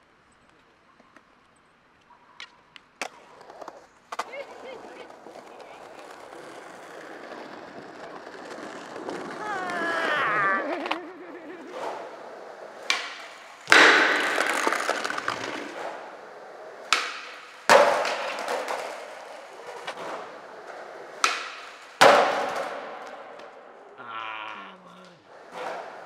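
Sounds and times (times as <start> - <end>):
skateboard clattering on concrete: 3.0 - 23.8, 25.2 - 26.0
skateboard tail pop: 10.5 - 23.7
skateboard landing slam: 10.6 - 23.7.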